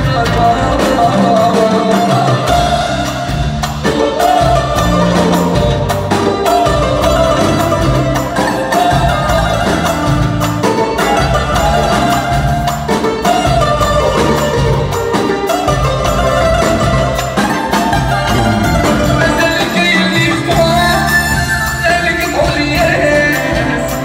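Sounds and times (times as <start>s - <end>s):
drum kit: 0.0s - 24.0s
hand drums: 0.0s - 24.0s
violins playing melody: 0.0s - 24.0s.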